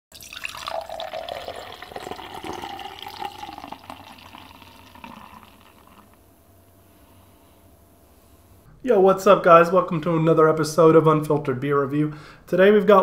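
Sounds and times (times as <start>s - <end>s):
beer pouring into a glass: 0.1s - 6.2s.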